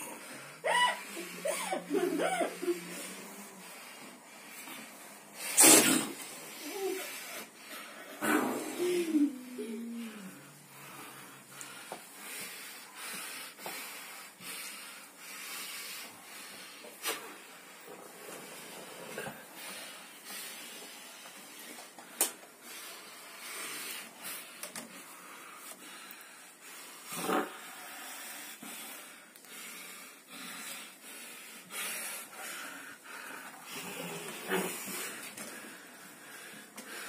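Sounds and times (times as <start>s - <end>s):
cat hissing: 5.4s - 7.2s.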